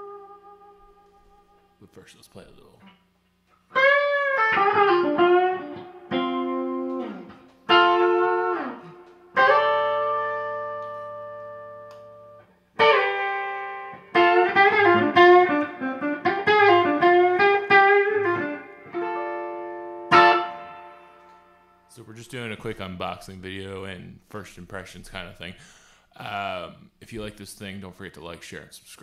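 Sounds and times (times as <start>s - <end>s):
electric guitar playing: 0.0s - 1.8s, 3.7s - 21.9s.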